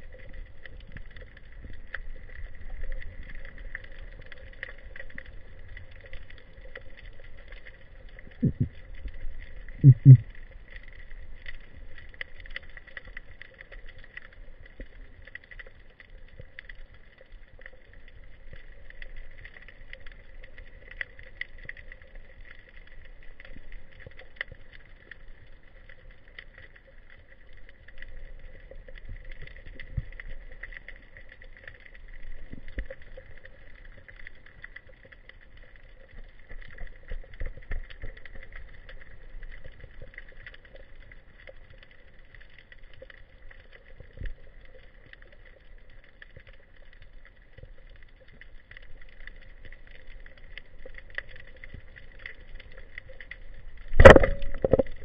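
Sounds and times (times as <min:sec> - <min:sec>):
crackling clicks: 0:00.0 - 0:55.0
muffled underwater hiss and hum: 0:08.3 - 0:10.5
dull low thumps: 0:08.4 - 0:08.7, 0:09.8 - 0:10.2.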